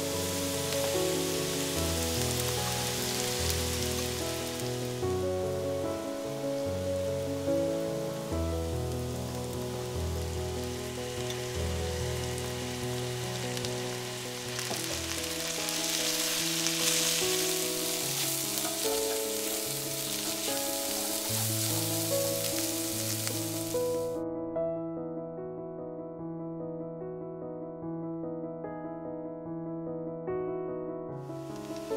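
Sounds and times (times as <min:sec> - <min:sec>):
vegetables sizzling in oil: 0:00.0 - 0:24.2
soft piano music: 0:00.0 - 0:31.9.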